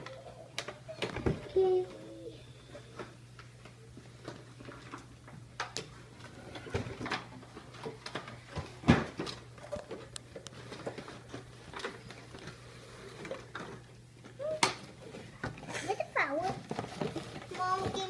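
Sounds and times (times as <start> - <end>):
packaging taps and rustles: 13.2 - 18.0.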